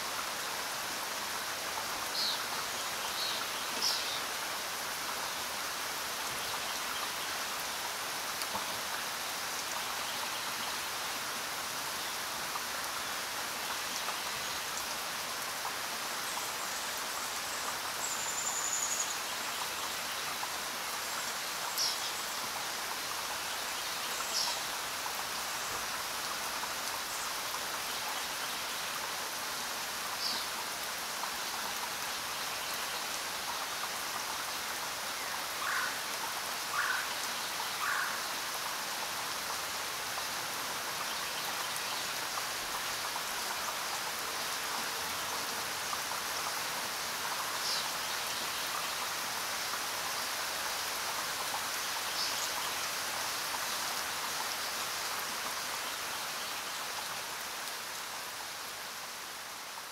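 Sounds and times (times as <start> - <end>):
steady rain hiss: 0.0 - 59.9.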